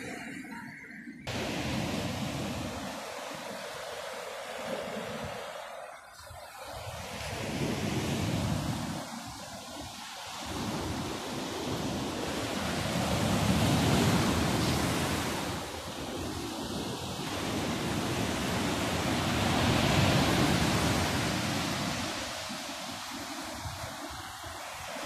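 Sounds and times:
surf washing against shore: 0:01.3 - 0:25.0.

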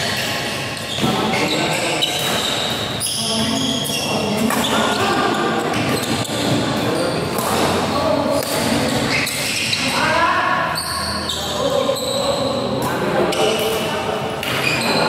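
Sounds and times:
rackets striking shuttlecock: 0:02.0 - 0:02.9, 0:07.3 - 0:09.7, 0:13.3 - 0:14.8.

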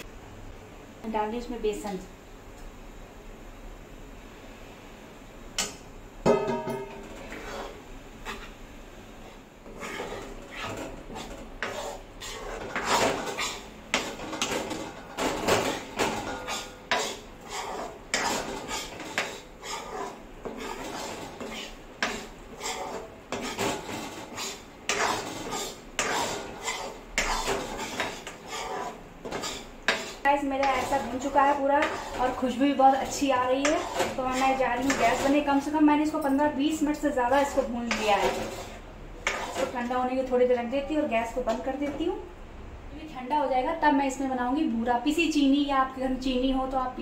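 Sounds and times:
steel spatula scraping a pan: 0:06.4 - 0:08.6, 0:09.6 - 0:35.8, 0:37.2 - 0:39.9.

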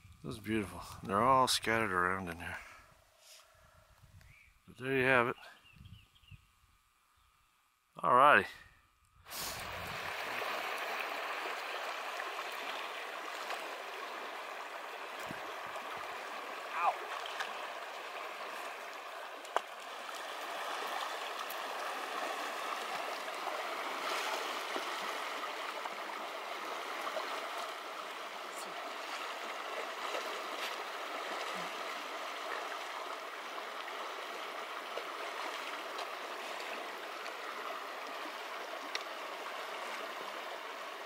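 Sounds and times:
stream rushing over sand: 0:09.3 - 0:41.0.

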